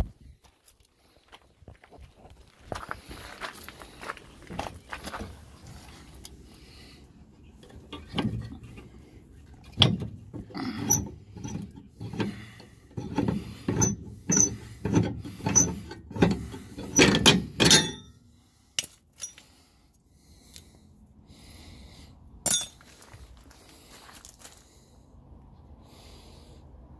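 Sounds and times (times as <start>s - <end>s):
metal hardware clanking: 9.6s - 18.2s, 22.5s - 22.8s
short high squeaks: 15.3s - 15.9s.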